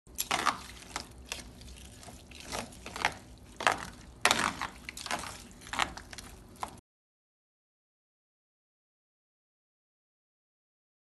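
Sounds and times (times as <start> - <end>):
wet squelching stirring: 0.1 - 6.8.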